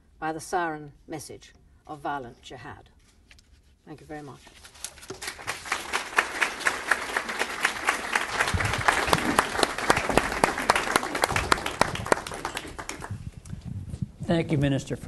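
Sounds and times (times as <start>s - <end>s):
audience applauding: 5.2s - 13.2s.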